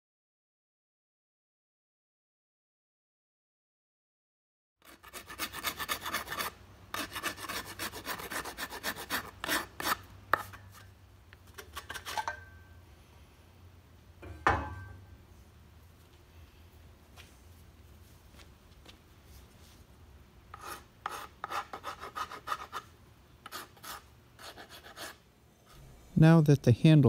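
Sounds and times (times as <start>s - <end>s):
hand file rasping on wood: 4.8s - 10.5s, 20.5s - 22.8s, 23.4s - 25.2s.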